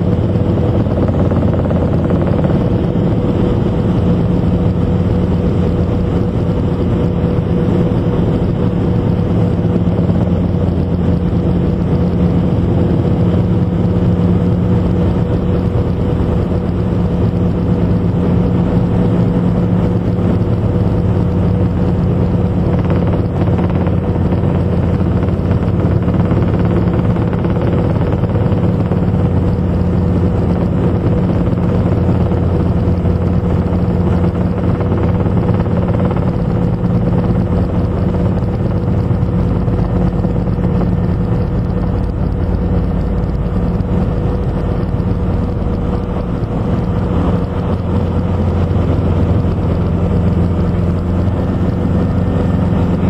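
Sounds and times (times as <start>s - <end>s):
helicopter engine and rotor drone: 0.0s - 53.0s.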